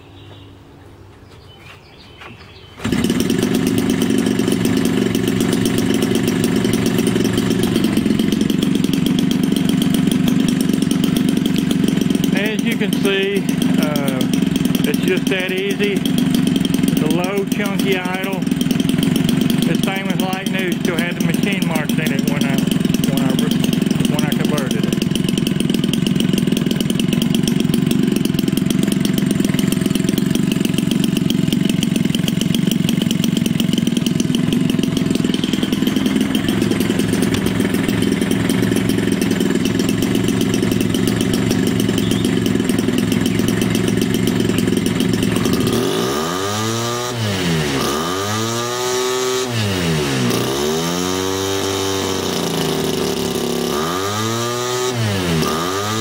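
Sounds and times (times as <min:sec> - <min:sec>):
two-stroke engine idling and revving: 0:02.7 - 0:56.0.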